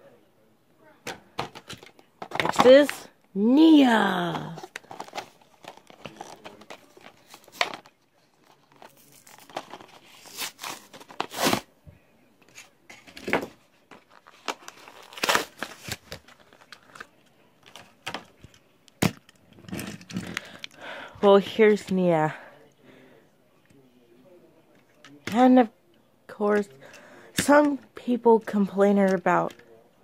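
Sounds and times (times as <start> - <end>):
plastic packaging crinkling: 4.5 - 11.6, 13.9 - 17.1.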